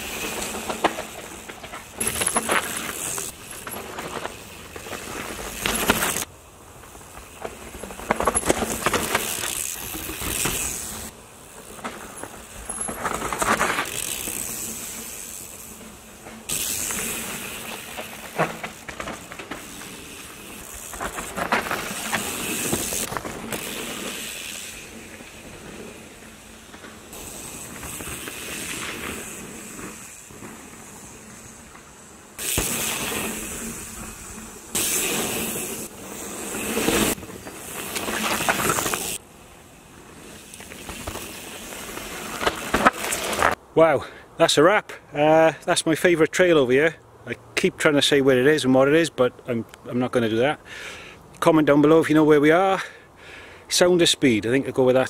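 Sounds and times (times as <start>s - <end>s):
bike tyres tearing through dirt: 0.0s - 43.6s
bike knocks and rattles: 0.1s - 6.3s, 6.9s - 14.6s, 16.2s - 24.0s.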